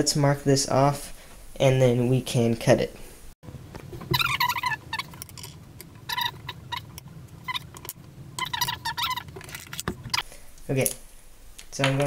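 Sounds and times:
low steady hum: 0.0 - 12.0
ruler and pipe squeaking on desk: 3.9 - 10.2.

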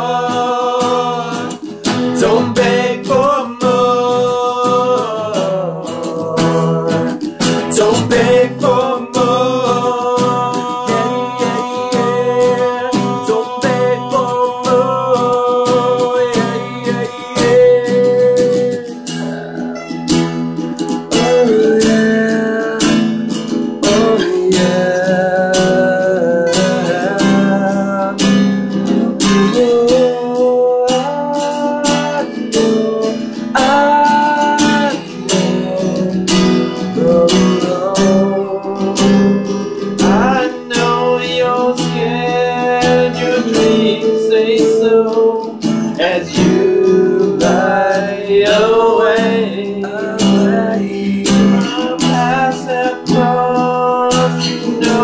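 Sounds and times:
acoustic guitars strumming: 0.0 - 55.0
man singing: 0.0 - 55.0.

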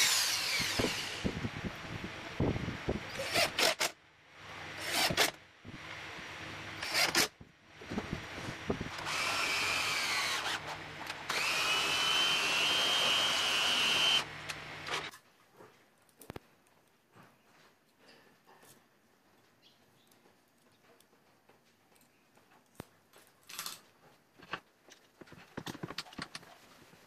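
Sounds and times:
cordless drill driving screws: 0.0 - 1.4, 3.1 - 4.0, 4.7 - 5.4, 6.7 - 7.3, 8.9 - 15.1
drill motor whining: 0.0 - 1.6, 3.0 - 4.0, 4.6 - 5.4, 6.6 - 15.1.

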